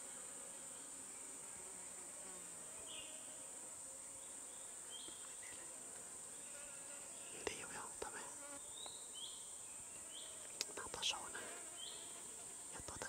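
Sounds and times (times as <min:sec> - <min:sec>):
faint chirps: 0:04.1 - 0:05.8.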